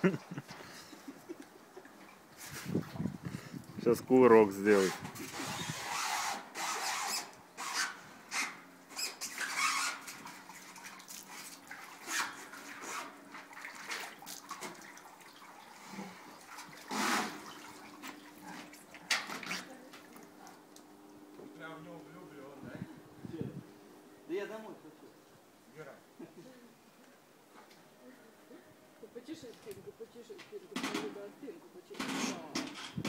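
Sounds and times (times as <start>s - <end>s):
bear splashing in bathtub: 9.5s - 20.9s.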